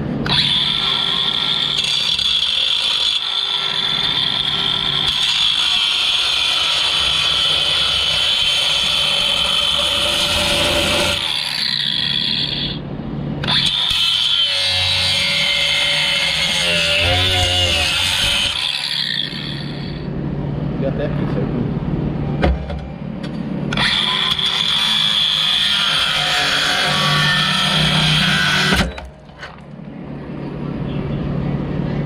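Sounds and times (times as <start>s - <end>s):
angle grinder cutting steel: 0.2s - 12.8s, 13.4s - 20.1s, 23.7s - 29.5s.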